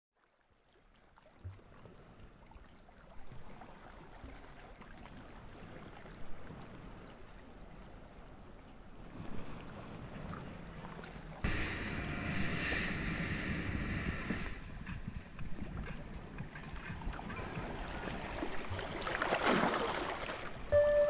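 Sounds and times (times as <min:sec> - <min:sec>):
water noise: 0:00.3 - 0:21.0
wind noise: 0:11.4 - 0:18.8.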